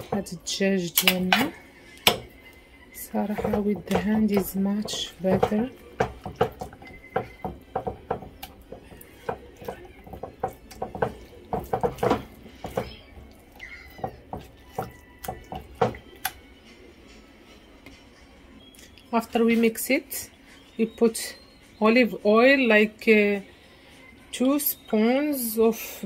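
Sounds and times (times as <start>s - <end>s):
meat knocking on earthenware: 2.0s - 2.4s, 3.2s - 13.4s, 14.0s - 16.3s.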